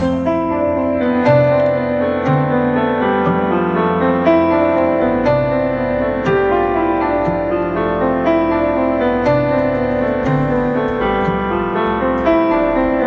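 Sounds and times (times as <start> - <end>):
keyboard music with light beat: 0.0 - 13.0.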